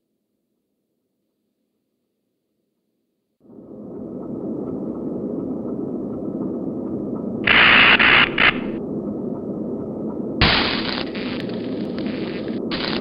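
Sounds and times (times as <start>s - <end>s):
low rumbling drone: 3.4s - 13.0s
loud static hiss: 7.4s - 8.8s, 10.4s - 13.0s.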